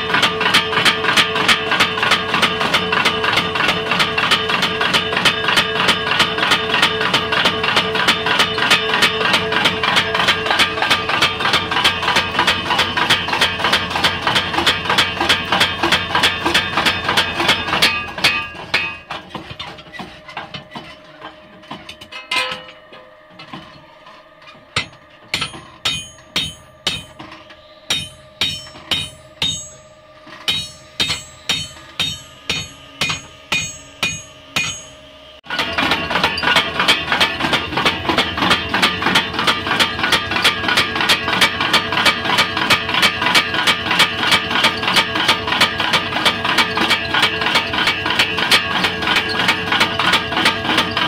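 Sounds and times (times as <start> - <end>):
hammer striking hot steel: 0.0 - 23.8, 24.7 - 50.9
power hammer motor hum: 23.3 - 51.0.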